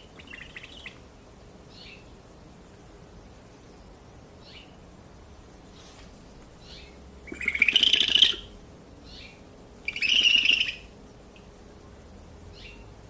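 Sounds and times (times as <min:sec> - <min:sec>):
owl giving harsh calls: 0:00.1 - 0:01.0, 0:07.2 - 0:08.6, 0:09.9 - 0:10.9.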